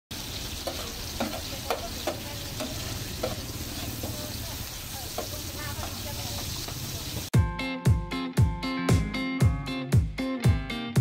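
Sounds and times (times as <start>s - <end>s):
food sizzling on griddle: 0.1s - 7.4s.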